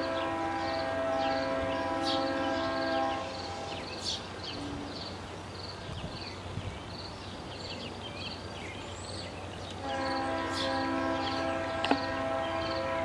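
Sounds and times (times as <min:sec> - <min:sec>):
locomotive air horn: 0:00.0 - 0:03.7, 0:09.8 - 0:13.0
birds chirping: 0:00.0 - 0:13.0.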